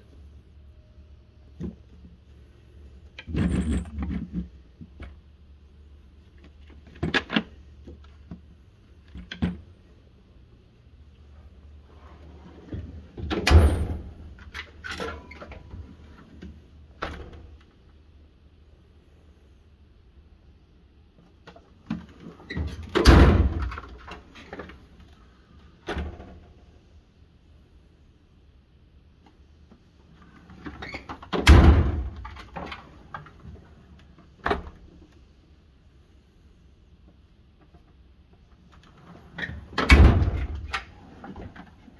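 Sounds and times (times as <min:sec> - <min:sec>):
tools rattling: 0:03.2 - 0:04.5
metal drawer banging shut: 0:13.2 - 0:14.3, 0:22.6 - 0:24.0, 0:31.3 - 0:32.8, 0:39.6 - 0:40.8.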